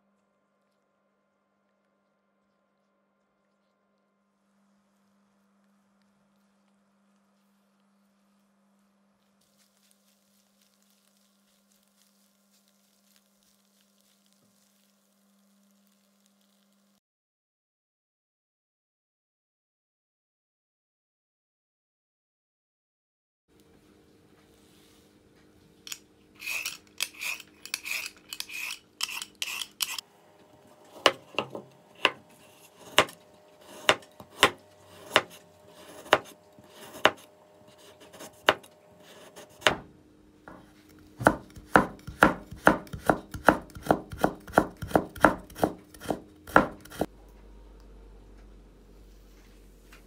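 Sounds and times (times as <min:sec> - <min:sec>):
knife scraping board: 0:25.9 - 0:30.0, 0:30.7 - 0:39.9, 0:40.5 - 0:47.1
knife slicing on wooden board: 0:26.4 - 0:30.0, 0:30.9 - 0:39.8, 0:40.5 - 0:47.1.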